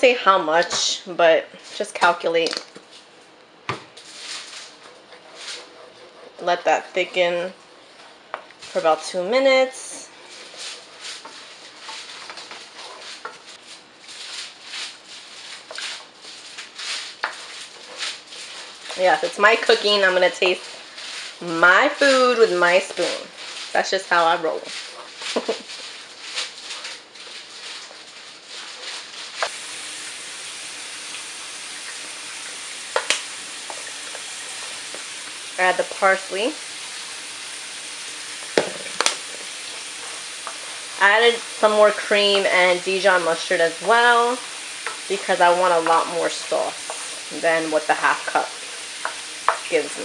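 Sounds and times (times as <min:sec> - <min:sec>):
spoon stirring sauce in a skillet: 0:10.2 - 0:29.4, 0:32.6 - 0:35.8, 0:38.0 - 0:49.8.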